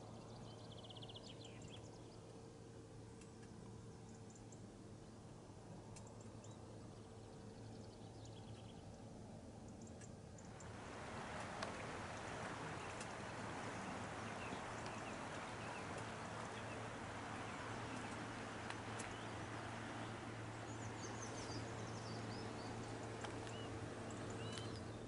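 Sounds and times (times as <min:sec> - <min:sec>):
small birds chirping: 0:00.1 - 0:02.4, 0:09.6 - 0:25.0
flowing river water: 0:10.5 - 0:25.0.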